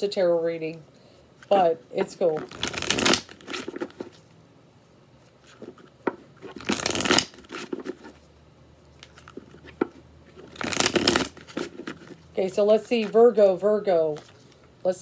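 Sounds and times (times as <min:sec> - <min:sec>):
cards riffle-shuffled: 0:01.4 - 0:04.2, 0:05.4 - 0:08.2, 0:08.9 - 0:12.2.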